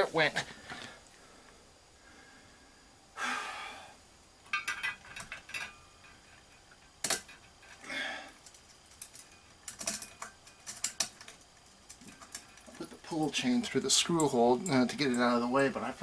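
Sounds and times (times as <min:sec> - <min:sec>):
person exhaling: 0:00.7 - 0:04.0, 0:07.8 - 0:08.4.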